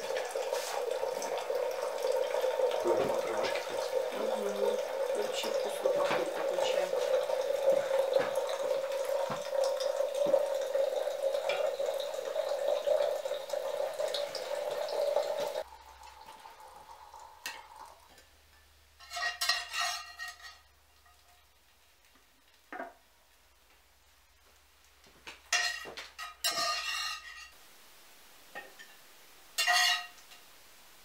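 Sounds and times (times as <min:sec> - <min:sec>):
hot water pouring into teapot: 0:00.0 - 0:18.3
spatula clattering in frying pan: 0:19.0 - 0:21.4, 0:25.5 - 0:27.5, 0:29.6 - 0:30.2.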